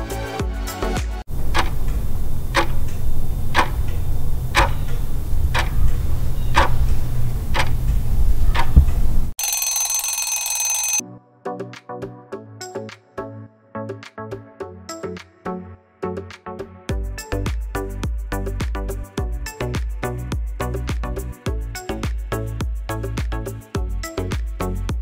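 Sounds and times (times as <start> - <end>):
timer ticking: 1.4 - 5.9, 6.6 - 6.9
alarm ringing: 9.4 - 11.0.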